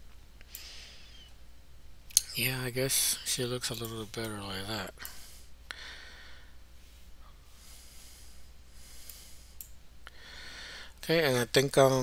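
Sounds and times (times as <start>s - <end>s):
low electrical hum: 0.0s - 12.0s
soft breaths: 0.4s - 1.4s, 4.9s - 11.0s.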